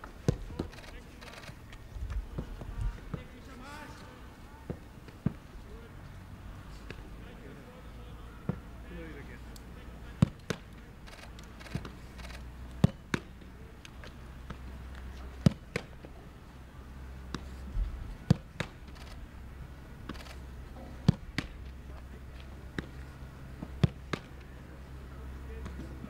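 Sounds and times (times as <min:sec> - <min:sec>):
football thuds: 0:00.2 - 0:00.7, 0:12.8 - 0:13.4, 0:15.4 - 0:16.0, 0:21.0 - 0:21.6, 0:23.6 - 0:24.4
glove slaps: 0:12.7 - 0:14.6, 0:21.0 - 0:21.8, 0:23.6 - 0:24.5.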